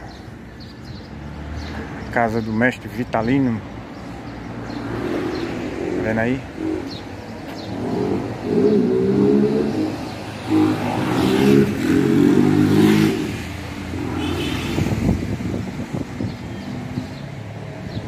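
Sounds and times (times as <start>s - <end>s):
vehicle engine revving: 4.8s - 18.0s.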